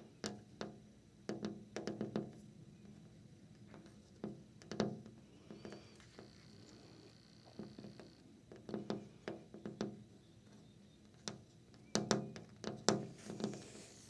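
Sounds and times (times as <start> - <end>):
fingernails tapping on a window: 0.2 - 2.4, 4.2 - 6.3, 7.4 - 10.2, 11.1 - 13.7.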